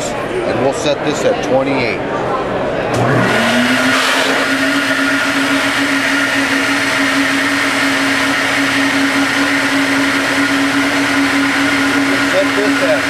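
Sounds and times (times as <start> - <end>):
blower running steadily: 3.0 - 13.0.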